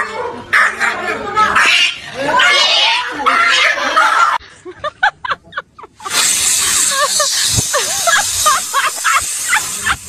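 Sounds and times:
air hissing into balloon: 0:06.0 - 0:10.0.

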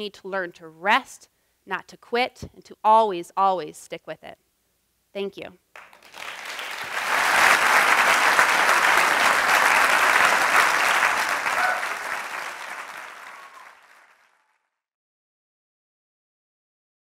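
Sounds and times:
audience applause: 0:05.8 - 0:14.6.

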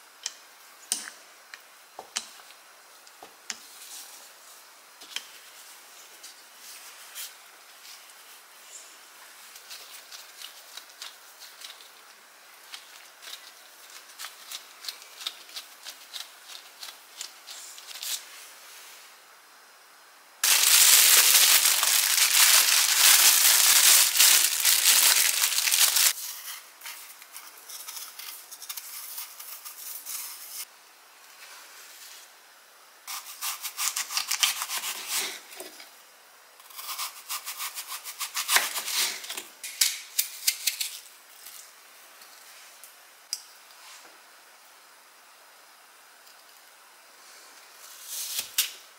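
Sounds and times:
hands handling pastry dough: 0:20.4 - 0:26.2.

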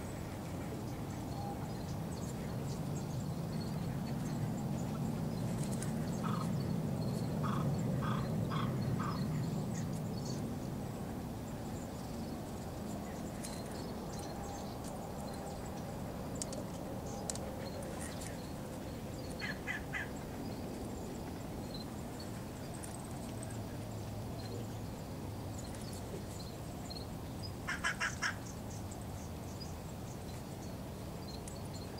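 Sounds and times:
birds calling: 0:03.6 - 0:10.5, 0:16.5 - 0:20.8, 0:27.5 - 0:28.9.

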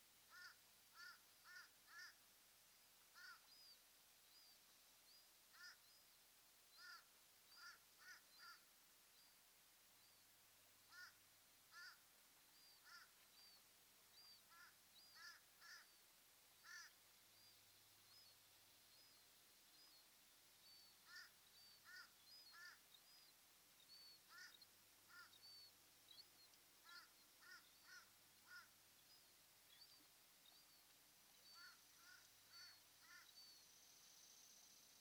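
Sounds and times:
steady hiss: 0:00.0 - 0:35.0
harsh bird calls: 0:14.5 - 0:16.0, 0:16.6 - 0:17.0, 0:20.8 - 0:22.8, 0:26.8 - 0:28.7, 0:31.5 - 0:33.6.

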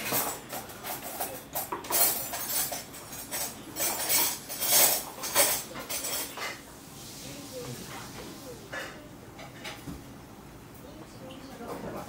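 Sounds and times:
cutlery scraping on a plate: 0:00.0 - 0:06.6.

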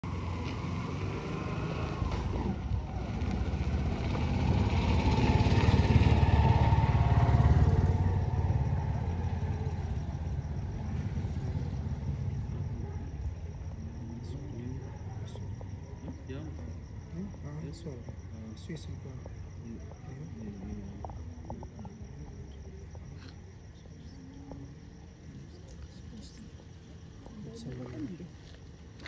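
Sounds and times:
vehicle engine passing: 0:00.0 - 0:16.7.

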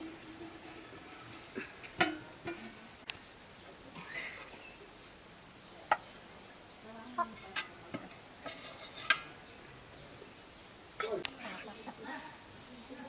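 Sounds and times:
metal spoon scraping pot: 0:07.3 - 0:09.4.

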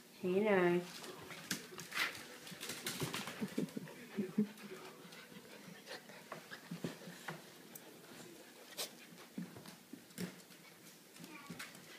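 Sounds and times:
paws scuffling: 0:00.9 - 0:11.9
dogs panting: 0:01.1 - 0:09.5.

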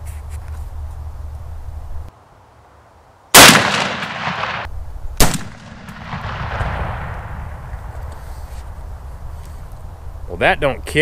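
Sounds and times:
shotgun blasts: 0:03.3 - 0:07.8
rolling echo: 0:03.4 - 0:08.2.

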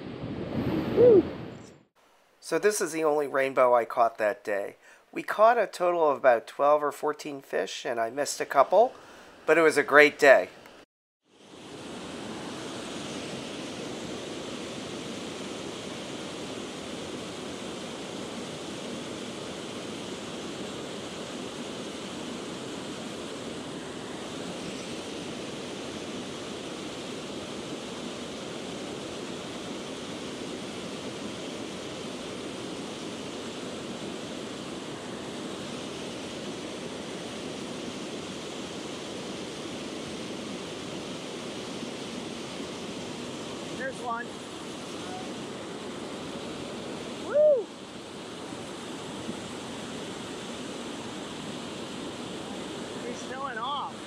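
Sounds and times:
small waterfall rushing: 0:11.3 - 0:54.0.

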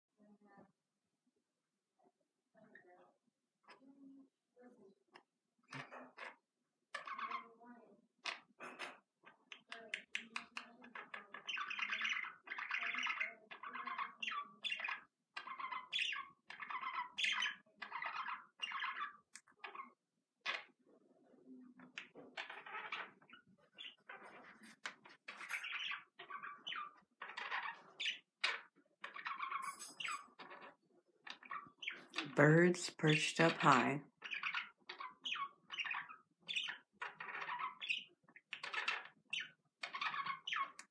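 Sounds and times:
budgerigars chattering: 0:11.4 - 0:19.2, 0:25.3 - 0:28.3, 0:33.4 - 0:40.9.

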